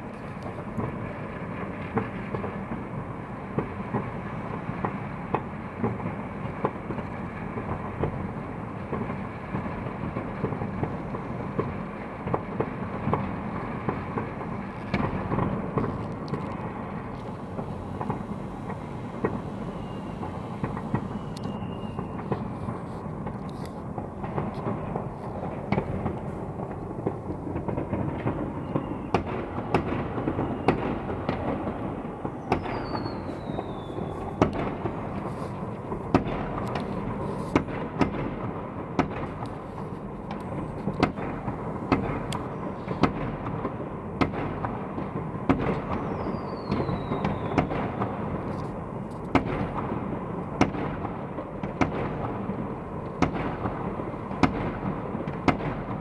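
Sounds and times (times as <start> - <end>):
distant fireworks rumbling: 0.0 - 56.0
sharp firework bangs: 8.9 - 39.4, 40.6 - 56.0
whistling firework falling pitch: 17.5 - 22.7, 28.2 - 31.5, 32.2 - 35.3, 45.8 - 48.1.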